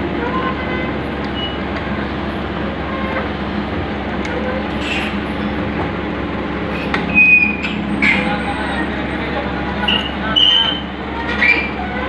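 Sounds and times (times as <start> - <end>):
crawler tracks clanking and squeaking: 0.0 - 12.0
diesel engine running: 0.0 - 12.0
short sharp squeal: 4.8 - 5.2, 6.8 - 8.6, 9.8 - 11.8.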